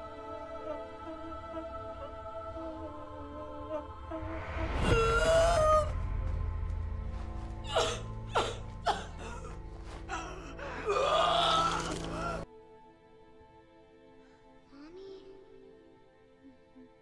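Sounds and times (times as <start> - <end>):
low tense music: 0.0 - 16.8.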